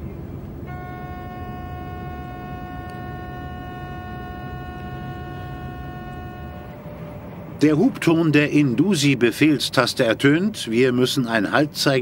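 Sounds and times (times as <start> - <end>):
low running rumble: 0.0 - 11.5
steady horn-like tone: 0.6 - 8.3.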